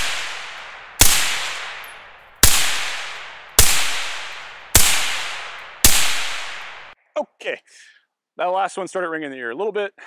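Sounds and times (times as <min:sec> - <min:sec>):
suppressed rifle shots echoing: 0:00.0 - 0:07.0.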